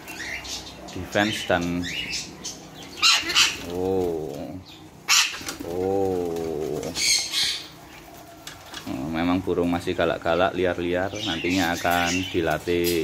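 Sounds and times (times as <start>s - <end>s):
parrots squawking: 0.0s - 5.8s, 6.7s - 8.8s
low wavering parrot calls: 2.8s - 3.8s, 5.0s - 5.5s
wings flapping: 5.1s - 9.2s.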